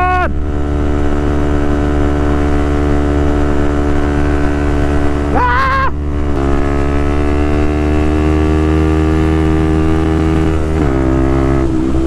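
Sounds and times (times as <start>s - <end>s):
wind rush on microphone: 0.0s - 8.3s.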